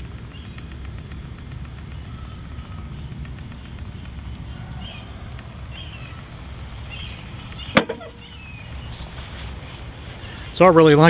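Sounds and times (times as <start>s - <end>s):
low outdoor background noise: 0.0s - 11.0s
faint high chirps: 1.8s - 9.4s.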